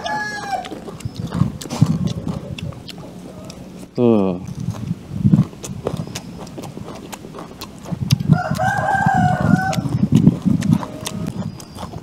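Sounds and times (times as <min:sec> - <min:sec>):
rooster crowing: 0:00.0 - 0:00.8, 0:08.2 - 0:10.0
crunchy chewing of vegetables: 0:00.0 - 0:12.0.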